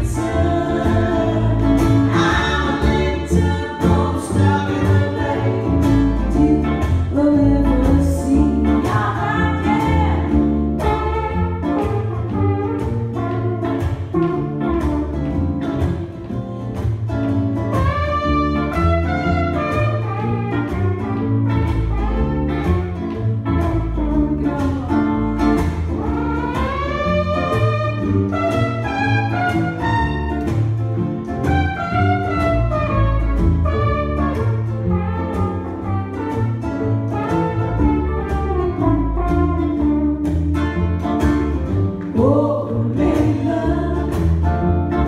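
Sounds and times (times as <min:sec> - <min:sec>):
woman singing: 0:00.0 - 0:11.2, 0:24.0 - 0:26.4, 0:42.0 - 0:44.6
double bass: 0:00.0 - 0:45.0
electric guitar: 0:00.0 - 0:45.0
strummed ukulele: 0:00.0 - 0:45.0.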